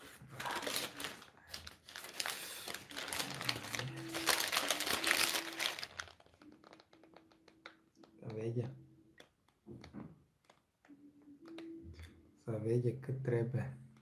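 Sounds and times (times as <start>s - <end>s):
paper wrapper crinkling: 0.0s - 7.8s.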